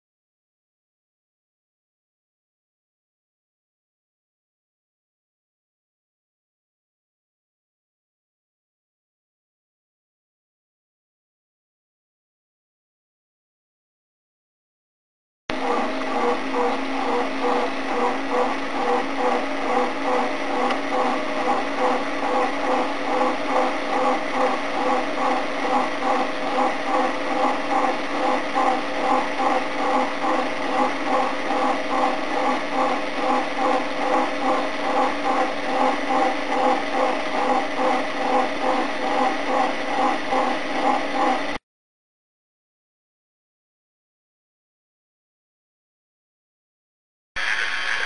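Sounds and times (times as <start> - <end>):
electric motor hum: 15.5 - 41.6, 47.4 - 48.0
teleprinter mechanical clatter: 15.6 - 41.6.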